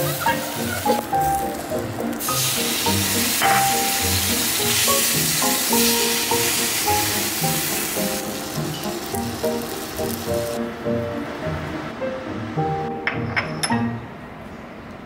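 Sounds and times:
sauce sizzling in a frying pan: 0.1s - 10.6s.

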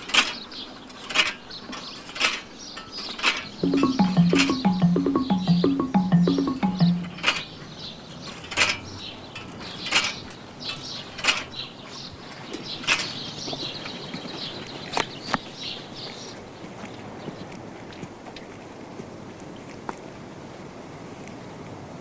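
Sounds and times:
high chirps: 3.6s - 7.3s.

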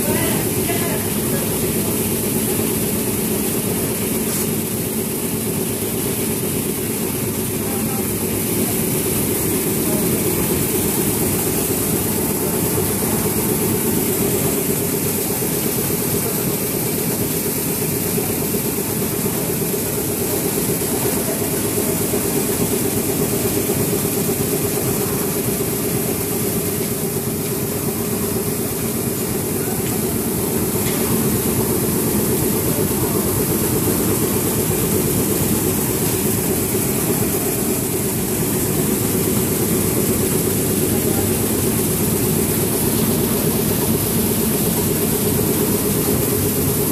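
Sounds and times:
machinery humming and hissing: 0.0s - 46.9s.

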